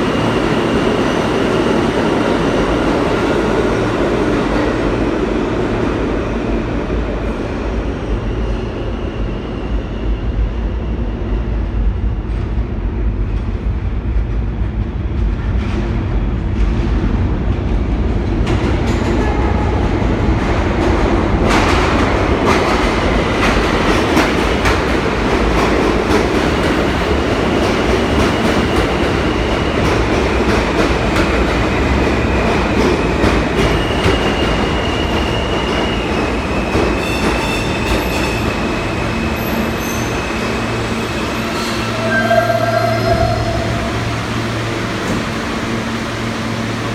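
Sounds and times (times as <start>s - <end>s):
subway train wheels clattering: 0.0s - 46.9s.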